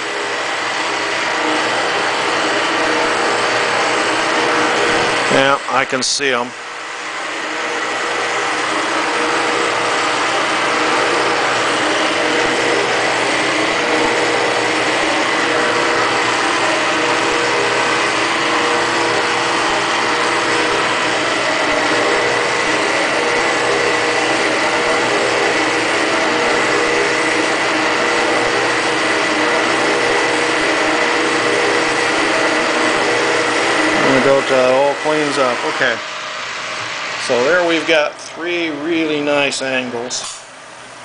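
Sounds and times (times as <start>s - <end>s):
machine spindle whirring: 0.0s - 41.0s.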